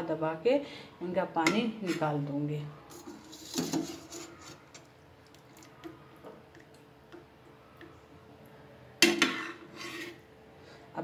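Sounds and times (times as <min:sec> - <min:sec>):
faint steady hum: 0:04.0 - 0:11.0.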